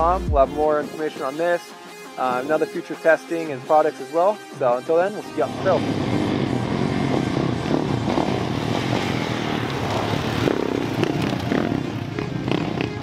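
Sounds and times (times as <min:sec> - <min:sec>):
dirt bike engines revving: 0:05.3 - 0:13.0.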